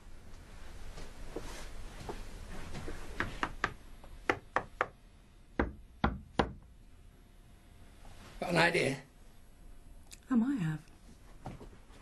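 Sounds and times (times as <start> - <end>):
hand knocking on wall: 5.6 - 6.7.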